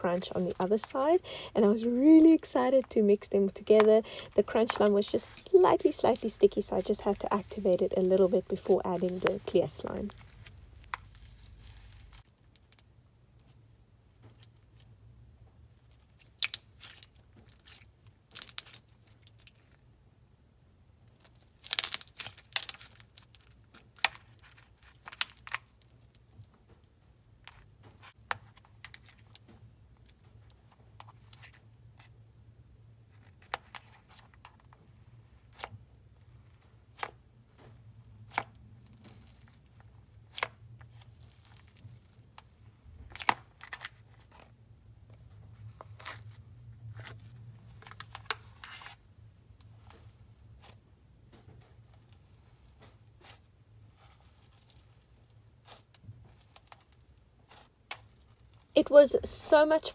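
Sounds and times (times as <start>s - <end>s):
crunchy slime crackles and pops: 15.9s - 19.8s, 21.2s - 26.2s.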